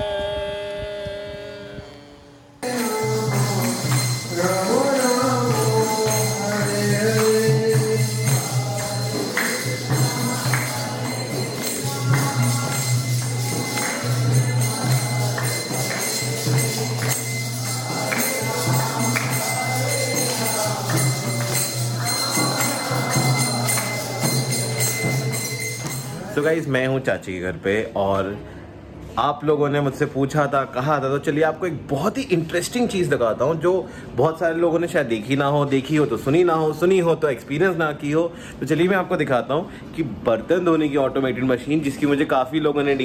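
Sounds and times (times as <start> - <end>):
person singing: 0.0 - 26.3
jingling percussion: 2.6 - 26.9.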